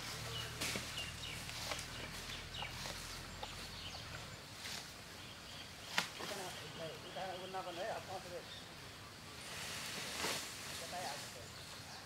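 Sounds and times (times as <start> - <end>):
elephant rustling and crunching grass: 0.0 - 6.8, 9.3 - 11.7.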